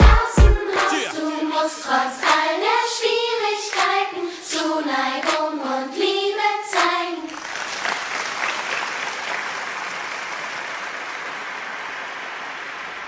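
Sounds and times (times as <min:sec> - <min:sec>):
children's choir singing: 0:00.0 - 0:07.4
hands clapping: 0:00.7 - 0:01.2, 0:03.7 - 0:05.5, 0:06.7 - 0:12.5.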